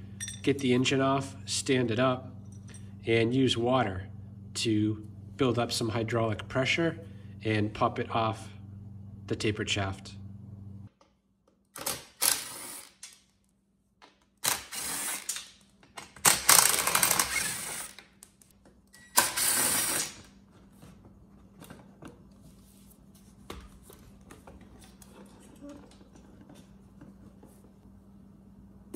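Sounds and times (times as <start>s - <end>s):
cordless driver spinning out screws: 14.4s - 15.4s, 16.2s - 18.0s.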